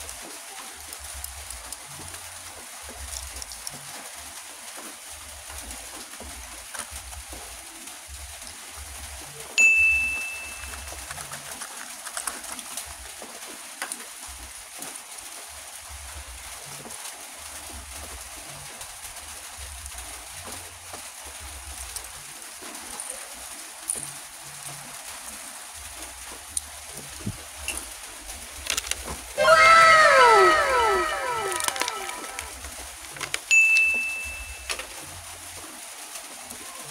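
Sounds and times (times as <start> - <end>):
steady hiss: 0.0 - 29.4, 30.2 - 36.9
clear ding: 9.6 - 10.8, 33.5 - 34.7
clicks of handling toy cars: 11.0 - 12.9, 28.6 - 29.3, 33.1 - 33.5.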